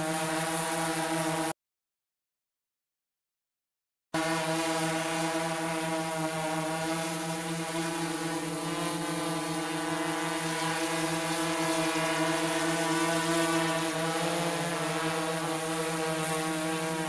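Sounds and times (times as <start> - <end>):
drone propellers buzzing: 4.2 - 17.0.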